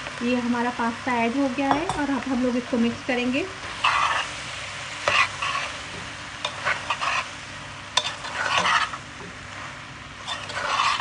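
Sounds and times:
food sizzling in a pan: 0:00.0 - 0:11.0
metal tapping on a pan: 0:01.7 - 0:02.2
metal utensil scraping a pan: 0:03.7 - 0:04.4, 0:05.0 - 0:07.3, 0:08.0 - 0:09.0, 0:10.2 - 0:11.0.

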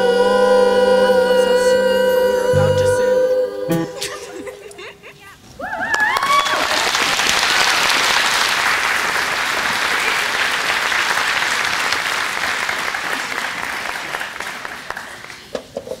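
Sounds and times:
audience applauding: 0:05.7 - 0:15.6.

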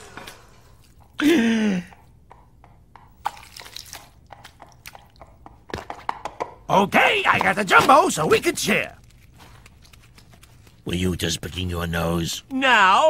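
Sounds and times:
faint clicks and smacks: 0:09.0 - 0:10.9.

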